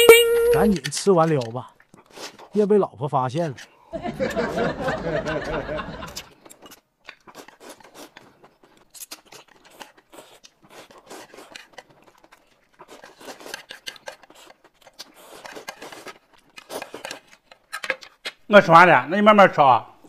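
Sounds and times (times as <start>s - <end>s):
noodles slurped and chewed: 0.8s - 2.6s, 6.1s - 17.7s.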